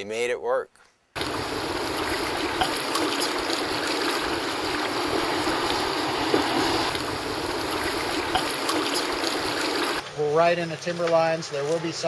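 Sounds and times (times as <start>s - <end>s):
river water rushing: 1.2s - 10.0s.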